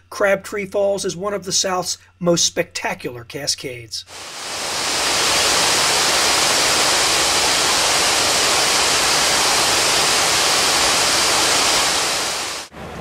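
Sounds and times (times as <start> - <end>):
waterfall rushing: 4.1 - 12.7.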